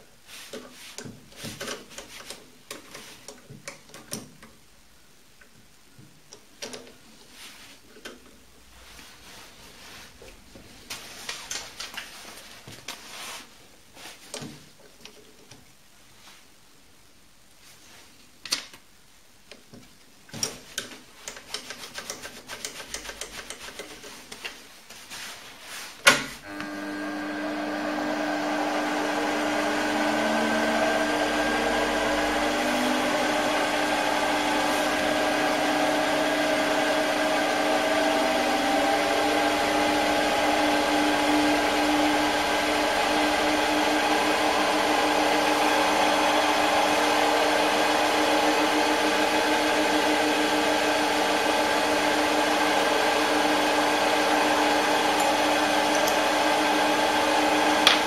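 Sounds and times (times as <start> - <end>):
lathe motor whine: 26.4 - 58.0.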